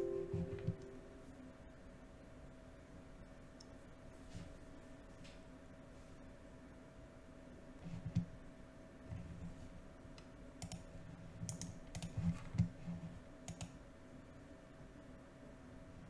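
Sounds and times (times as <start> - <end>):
keyboard and mouse clicks: 10.6 - 12.7, 13.5 - 13.8.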